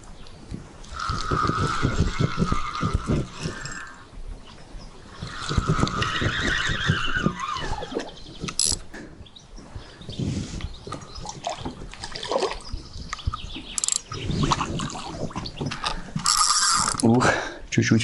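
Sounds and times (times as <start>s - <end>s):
fishing reel drag whining: 0.9s - 4.1s, 8.5s - 8.8s, 13.8s - 14.1s, 15.8s - 17.1s
reel clicks and knocks: 8.5s - 9.0s, 13.7s - 14.1s, 15.6s - 17.1s.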